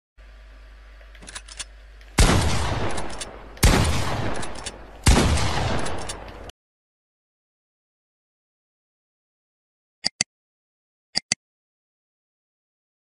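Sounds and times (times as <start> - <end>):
gunshots with rumbling echo: 2.2 - 6.5
light clicks: 5.8 - 6.5.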